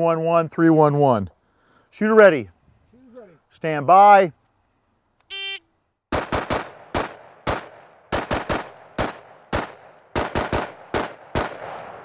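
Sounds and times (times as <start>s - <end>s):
rifle gunshots with echo: 6.1s - 12.0s.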